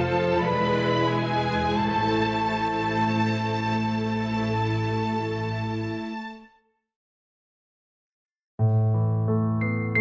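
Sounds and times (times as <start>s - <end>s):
music of slow held chords: 8.6s - 10.0s.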